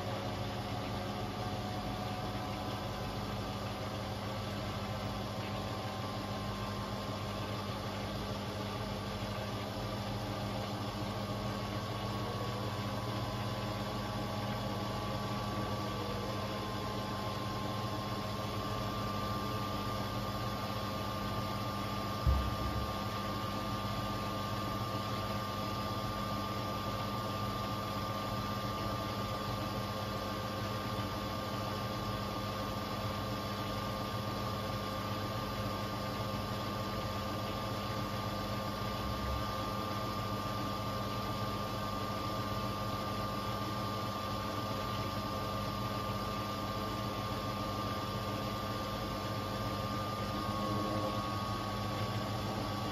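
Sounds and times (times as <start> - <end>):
washing machine drum spinning: 0.0 - 29.3
short thump: 22.2 - 22.8.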